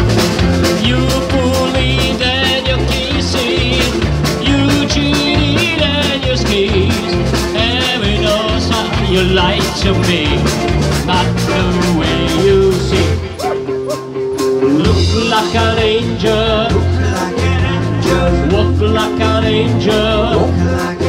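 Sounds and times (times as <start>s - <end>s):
bass guitar: 0.0s - 21.0s
drums: 0.0s - 21.0s
electric guitars: 0.0s - 21.0s
person singing: 0.4s - 21.0s.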